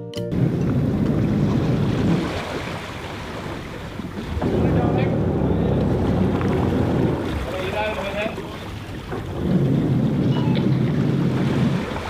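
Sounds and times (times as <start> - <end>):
water noise from moving boat: 0.3 - 12.0
wind rumbling on microphone: 0.3 - 12.0.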